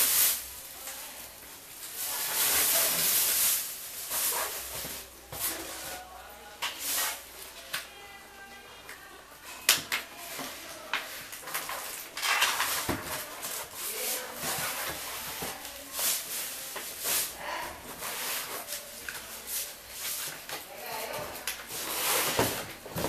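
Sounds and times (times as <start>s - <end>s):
plastic wrap rustling: 0.0s - 8.2s, 9.5s - 23.0s
foam blocks squeaking on tiles: 1.8s - 6.0s, 11.2s - 23.0s.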